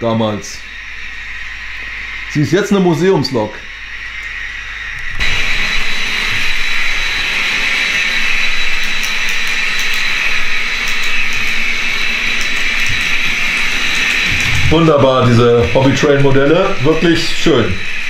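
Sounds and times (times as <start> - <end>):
model train motor whirring: 5.0 - 18.0.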